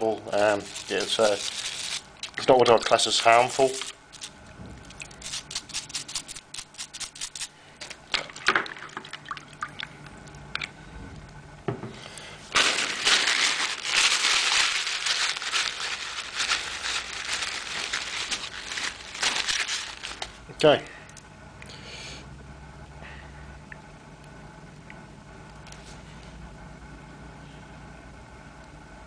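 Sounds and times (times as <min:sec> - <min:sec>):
water dripping and trickling: 0:04.8 - 0:05.2, 0:08.2 - 0:10.7
water splashing: 0:08.1 - 0:10.7.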